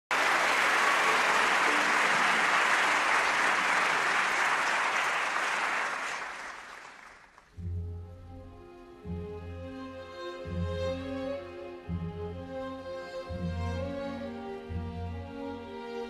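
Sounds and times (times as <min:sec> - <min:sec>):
audience applause: 0:00.1 - 0:07.5.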